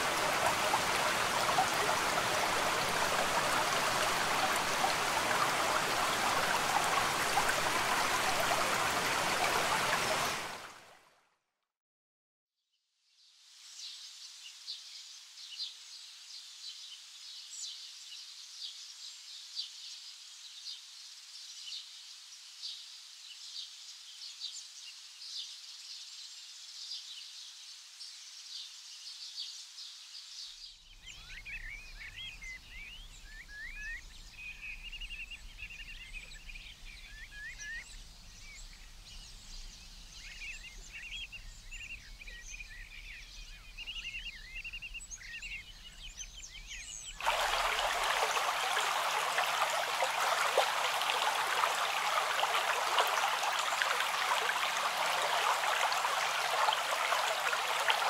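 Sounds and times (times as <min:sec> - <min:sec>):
flowing stream: 0:00.0 - 0:11.0, 0:47.2 - 0:58.0.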